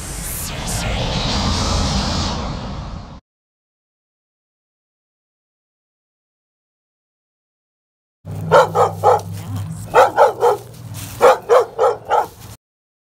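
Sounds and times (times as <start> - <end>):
dog barking: 8.3 - 12.6.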